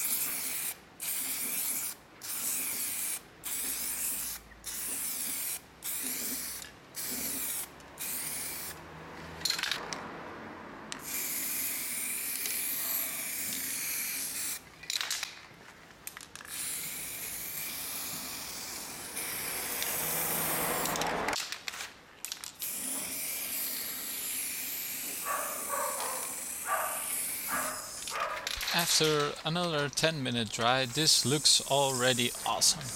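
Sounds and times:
aerosol spray can hissing: 0.0 - 8.8, 11.0 - 14.6, 16.5 - 21.0, 22.6 - 28.2, 30.7 - 32.9.

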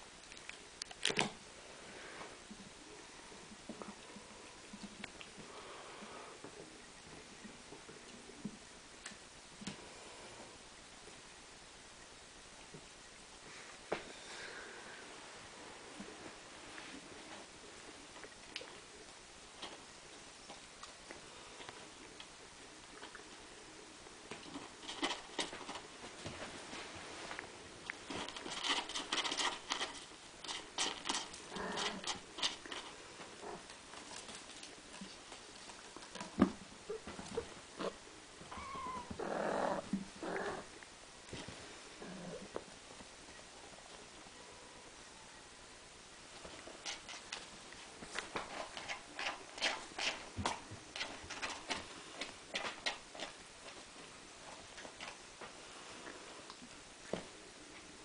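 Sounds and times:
cat scratching in litter: 28.0 - 32.9, 48.4 - 51.8.

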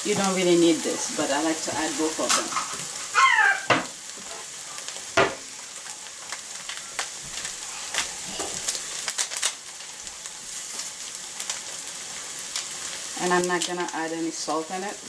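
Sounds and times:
meat sizzling in a pot: 0.0 - 15.0
foil packet crinkling: 6.3 - 11.8.

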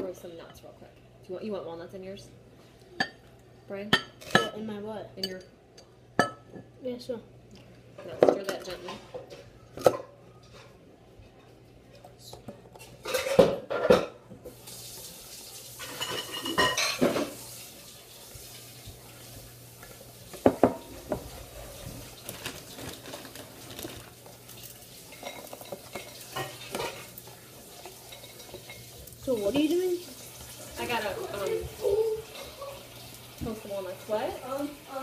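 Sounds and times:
dishes and utensils clattering: 3.9 - 4.6, 8.0 - 14.6, 15.7 - 17.6, 20.3 - 33.1.

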